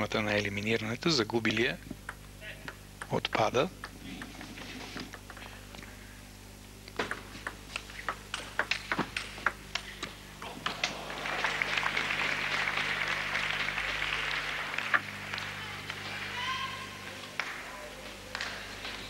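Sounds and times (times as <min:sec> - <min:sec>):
table tennis ball clicking: 0:01.5 - 0:04.4, 0:06.9 - 0:09.8
crowd applauding: 0:10.5 - 0:19.0.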